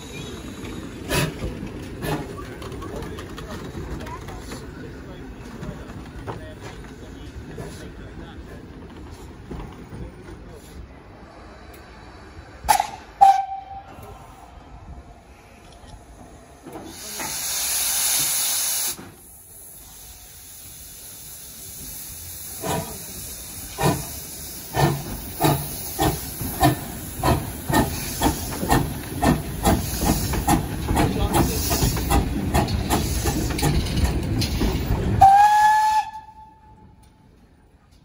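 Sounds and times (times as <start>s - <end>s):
steam locomotive whistle toot: 12.7s - 14.2s, 35.2s - 36.9s
loud hiss of steam: 16.7s - 33.8s
steam locomotive exhaust chuffs: 16.8s - 36.4s.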